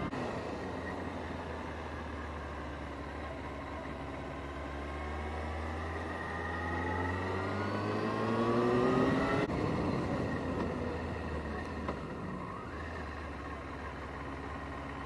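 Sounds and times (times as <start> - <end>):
motorcycle engine accelerating: 0.0 - 15.0.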